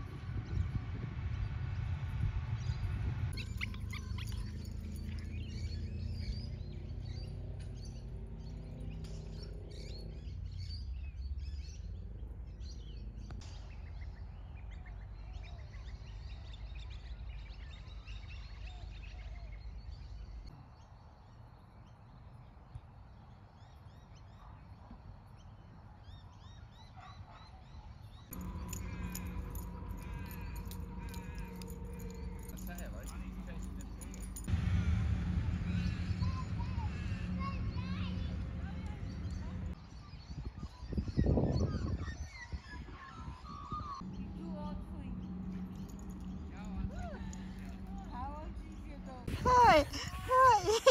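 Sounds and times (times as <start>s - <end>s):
low steady rumble: 0.0s - 13.8s, 28.3s - 39.8s, 43.9s - 50.9s
birds chirping and calling: 3.3s - 13.4s, 28.3s - 34.5s, 35.5s - 50.9s
steady low hum: 28.3s - 39.8s, 44.0s - 50.9s.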